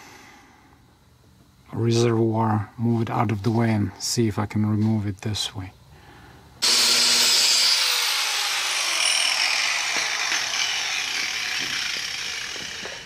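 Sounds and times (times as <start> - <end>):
power grinder grinding steel: 6.6 - 13.0.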